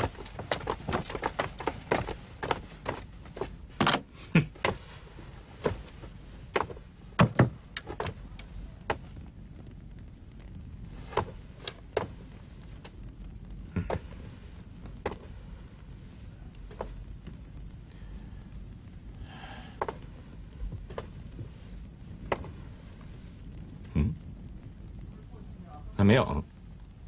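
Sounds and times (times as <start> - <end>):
heavy wooden thuds: 0.0 - 9.2, 10.9 - 13.0, 13.7 - 15.4, 19.4 - 23.1
quick footsteps of people: 0.0 - 9.2, 10.9 - 13.0, 13.8 - 17.4, 19.8 - 23.2
slow spaced footsteps: 0.0 - 23.9.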